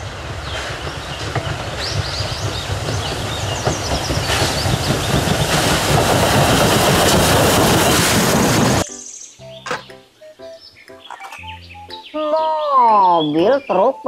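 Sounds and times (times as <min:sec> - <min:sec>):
steam train approaching: 0:00.0 - 0:09.6.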